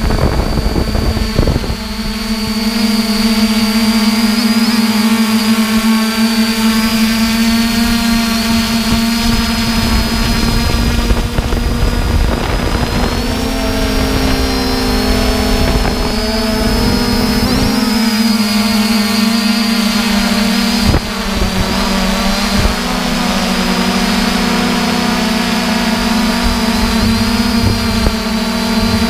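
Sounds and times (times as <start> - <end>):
drone propellers humming: 0.0 - 29.0
low rumble: 26.2 - 29.0.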